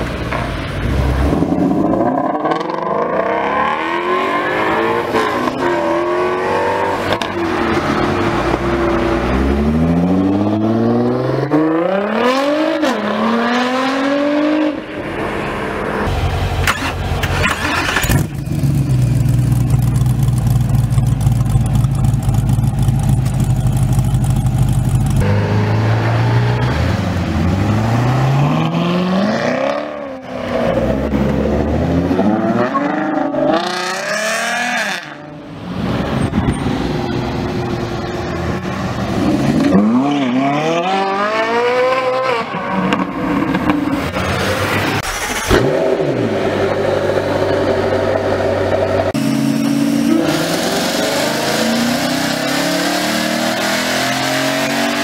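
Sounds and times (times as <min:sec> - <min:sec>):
sports car accelerating: 0:00.8 - 0:16.4, 0:18.2 - 0:55.0
race car engine running: 0:16.2 - 0:25.3.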